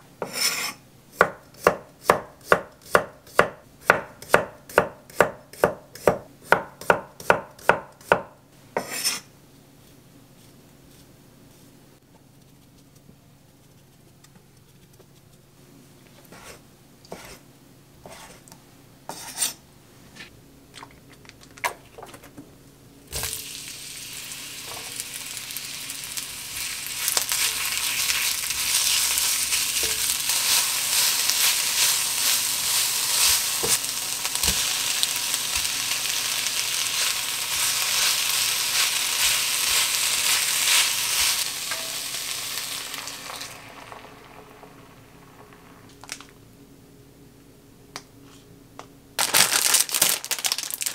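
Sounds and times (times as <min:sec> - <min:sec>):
knife chopping on wooden board: 0:00.2 - 0:09.2
onion and garlic sizzling in pan: 0:00.2 - 0:09.3, 0:23.1 - 0:46.2.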